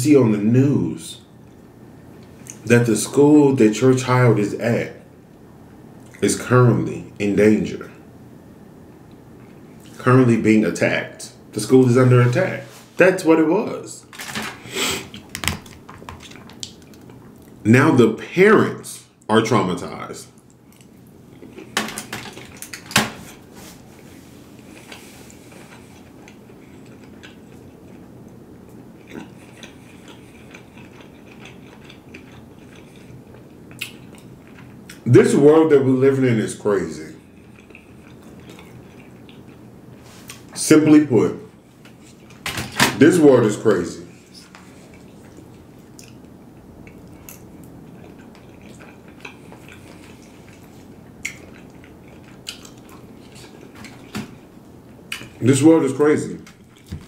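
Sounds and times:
low background hum: 0.0 - 57.0
person chewing food: 14.6 - 17.6, 20.4 - 35.1, 37.2 - 40.5, 41.6 - 42.4, 44.1 - 55.4, 56.5 - 57.0
wet mouth clicks and smacks: 16.2 - 17.6
mouth smacking while eating: 29.0 - 35.0.

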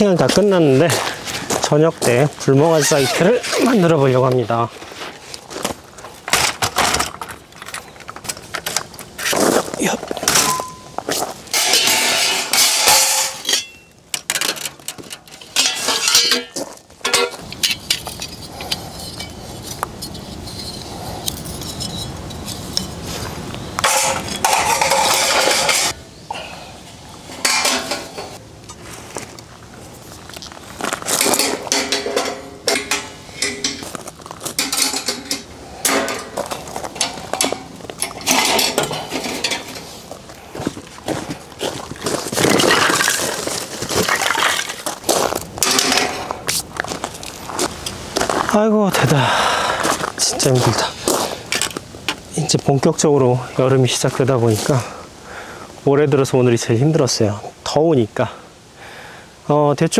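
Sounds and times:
metal camping gear clinking: 6.1 - 26.0, 26.9 - 28.8, 30.3 - 40.1, 42.4 - 46.5.

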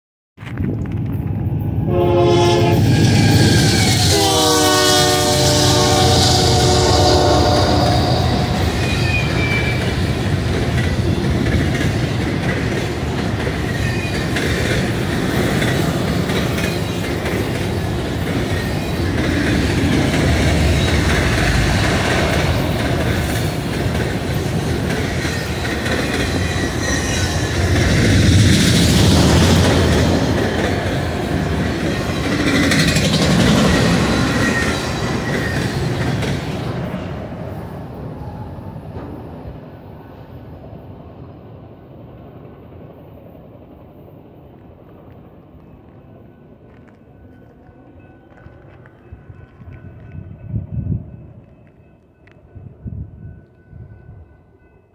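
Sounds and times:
freight train cars rumbling past: 0.4 - 54.9.

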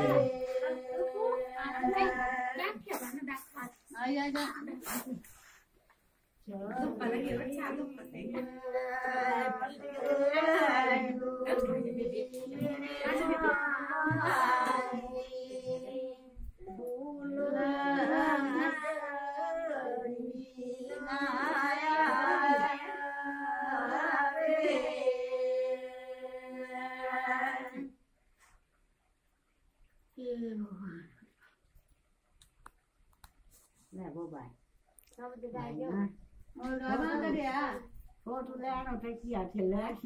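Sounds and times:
women singing without instruments: 0.0 - 2.6, 6.5 - 28.0.

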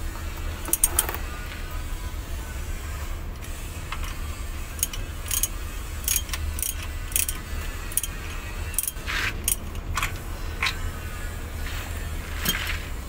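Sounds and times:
ratchet wrench clicking: 0.6 - 1.2, 3.9 - 11.3.

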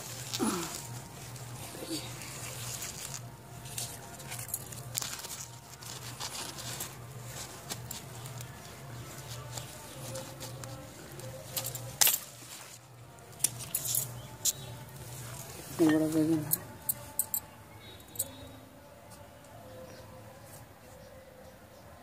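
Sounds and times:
leaves and stems rustling: 0.0 - 17.4.

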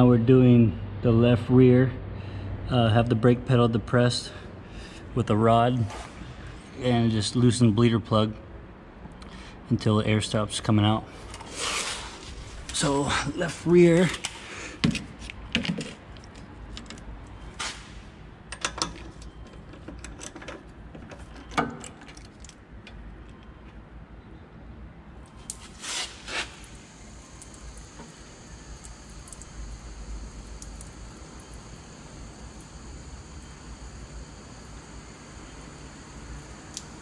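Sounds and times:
faint high whine with hiss: 25.4 - 37.0.

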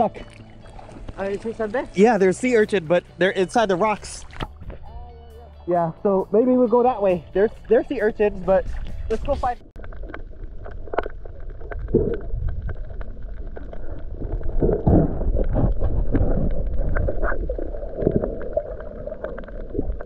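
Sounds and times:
underwater water rumbling: 0.0 - 2.6, 3.8 - 5.0, 7.2 - 20.0
water gurgling: 7.1 - 20.0.

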